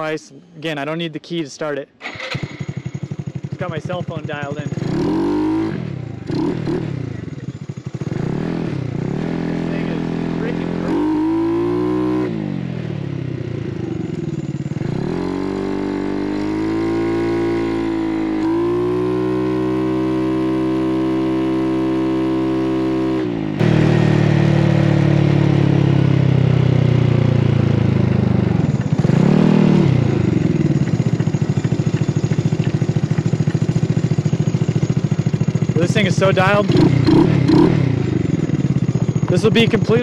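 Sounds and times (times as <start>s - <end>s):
scooter engine revving: 2.0s - 40.0s.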